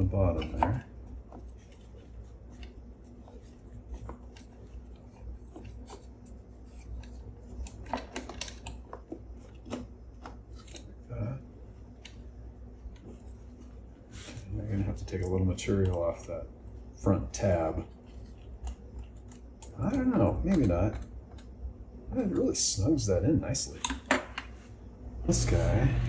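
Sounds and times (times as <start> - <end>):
low hum: 25.0 - 26.0.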